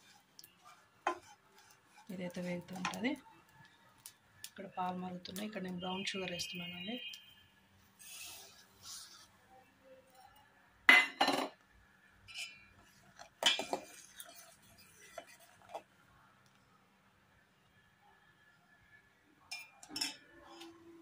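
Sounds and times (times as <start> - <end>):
sugar pouring with soft hiss: 0.0 - 6.5, 7.8 - 9.4, 12.8 - 15.8.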